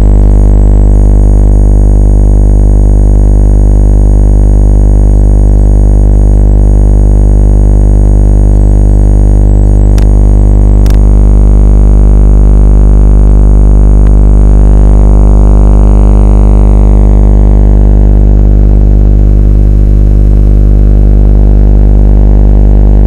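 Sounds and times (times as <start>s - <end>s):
loud electric buzz: 0.0s - 0.8s, 9.3s - 21.1s
brief crackles: 10.8s - 11.0s.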